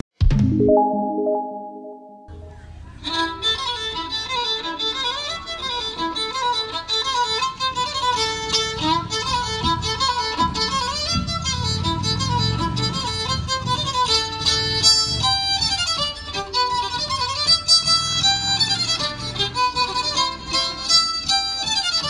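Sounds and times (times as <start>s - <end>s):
fiddle folk melody: 1.5s - 22.0s.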